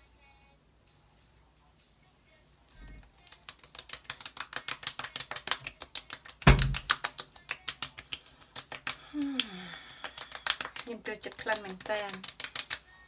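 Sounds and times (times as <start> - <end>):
palms patting cheeks: 2.7 - 13.0.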